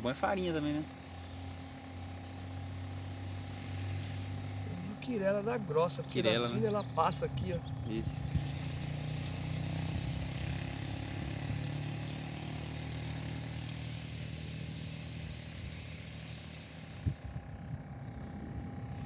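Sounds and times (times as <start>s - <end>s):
air pump humming: 0.0s - 9.4s.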